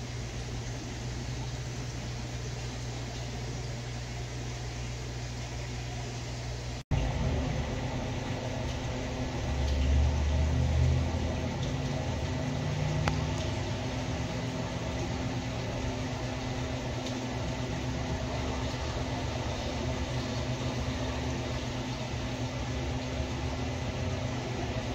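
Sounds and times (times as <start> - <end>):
equipment hum and hiss: 0.0 - 24.9
low rumble: 6.9 - 15.6.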